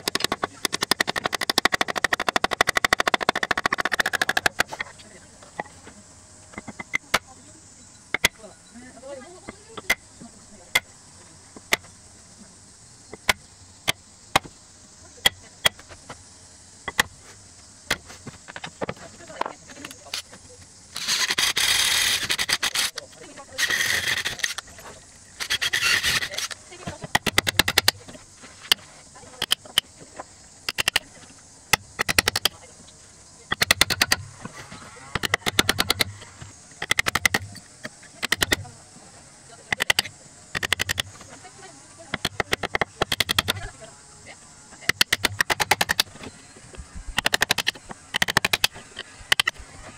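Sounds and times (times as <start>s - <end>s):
hammer striking chisel: 31.8s - 32.5s, 33.5s - 34.2s, 35.1s - 36.2s, 36.8s - 37.6s, 38.2s - 38.6s, 39.7s - 41.0s, 42.1s - 43.6s, 44.9s - 46.2s, 47.2s - 49.6s.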